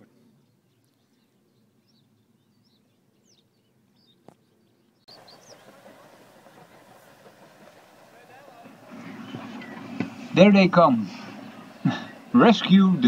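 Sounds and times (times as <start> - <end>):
small birds chirping: 0.0 - 13.0
steady rushing noise: 5.1 - 13.0.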